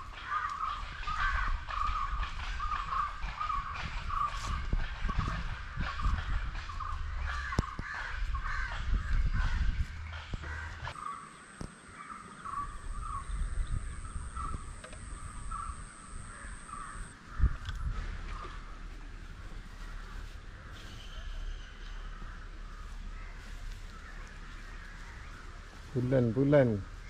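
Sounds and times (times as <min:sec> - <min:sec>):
crows cawing: 0:00.0 - 0:04.4, 0:07.1 - 0:17.6, 0:19.6 - 0:25.8.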